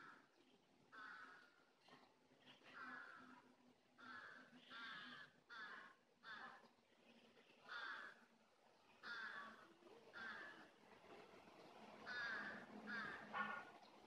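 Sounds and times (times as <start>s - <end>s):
crow cawing: 0.9s - 1.6s, 2.7s - 3.4s, 4.0s - 6.6s, 7.7s - 8.3s, 9.0s - 10.7s, 12.0s - 13.7s.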